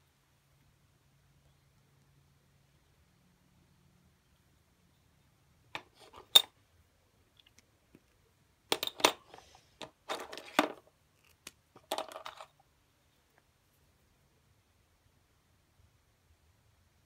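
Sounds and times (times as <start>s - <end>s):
pens and coins clattering in saucer: 11.8s - 12.6s.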